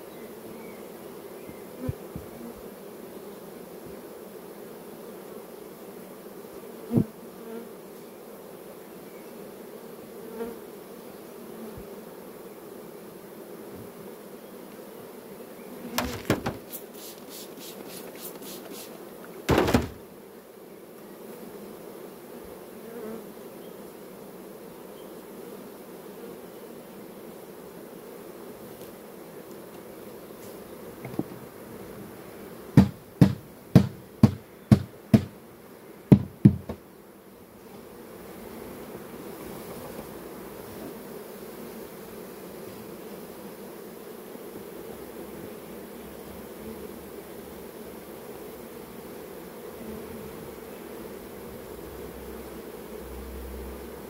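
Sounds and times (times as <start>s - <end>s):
honeybees humming: 0.0s - 54.0s
knocks: 15.9s - 16.8s, 19.5s - 20.1s, 32.8s - 35.4s, 36.1s - 36.8s.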